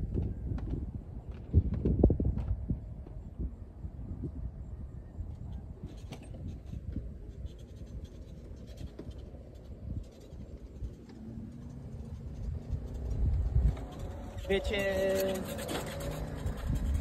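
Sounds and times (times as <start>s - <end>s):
wind buffeting microphone: 0.0s - 17.0s
faint scratches and ticks: 5.2s - 17.0s.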